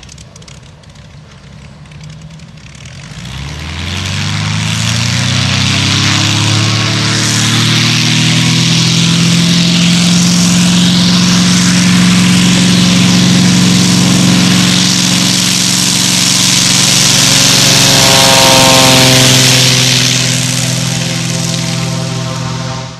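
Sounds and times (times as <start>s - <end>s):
plane engine and propeller: 0.0s - 22.9s
propeller wash hiss: 6.0s - 22.9s.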